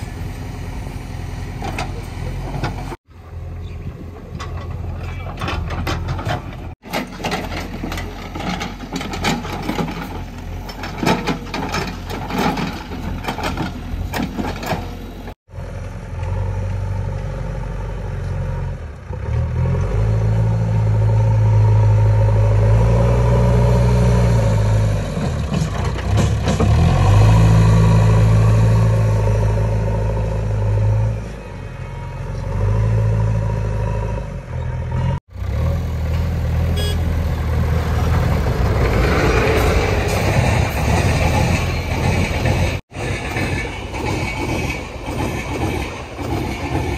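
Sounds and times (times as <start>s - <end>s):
irregular knocks and clatter: 4.3s - 15.1s, 25.2s - 27.1s, 38.1s - 46.9s
heavy diesel engine revving: 16.1s - 43.0s.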